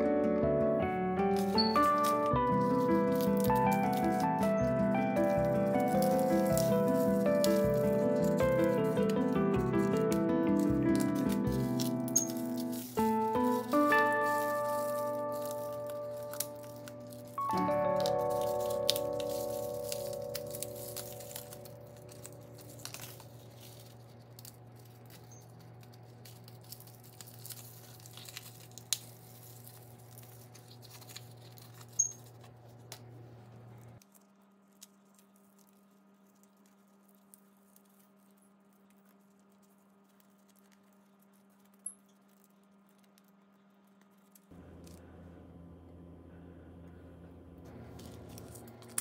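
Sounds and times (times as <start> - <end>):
low steady hum: 0.2 - 49.0
light clicks and crackling: 33.8 - 45.0.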